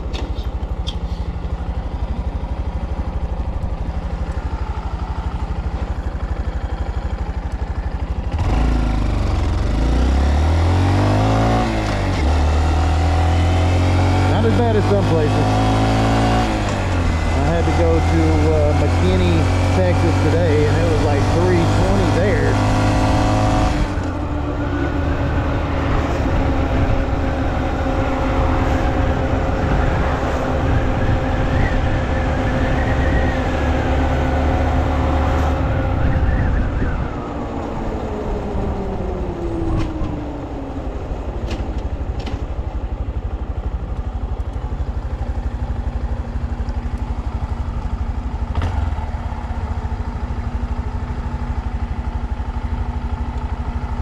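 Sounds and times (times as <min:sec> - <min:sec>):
motorcycle engine running: 0:00.0 - 0:54.0
wind buffeting microphone: 0:35.6 - 0:41.4.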